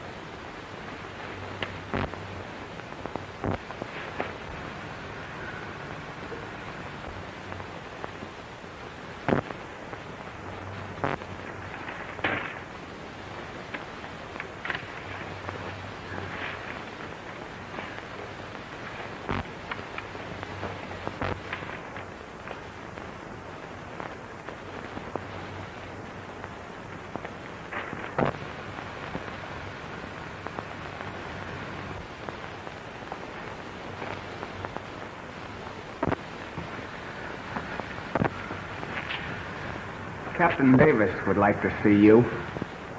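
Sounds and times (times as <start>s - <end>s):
faint hum: 0.0s - 42.9s
film soundtrack hiss and crackle: 0.0s - 42.9s
sharp clicks and pops: 1.0s - 4.6s, 9.2s - 29.4s, 32.0s - 40.6s.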